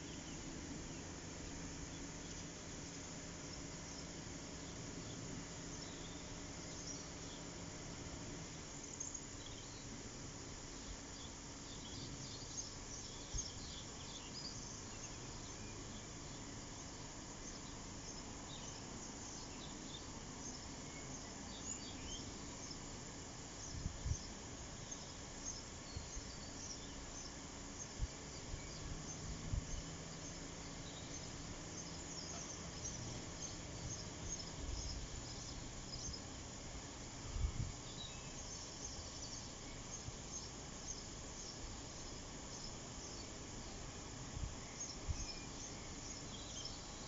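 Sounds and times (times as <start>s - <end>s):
small birds chirping: 0.0s - 47.0s.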